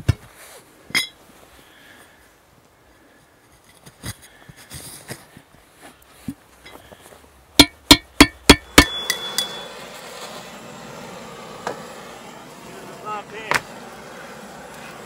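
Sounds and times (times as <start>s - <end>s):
steady hiss: 0.0s - 15.0s
sharp metallic clinks: 7.6s - 9.8s.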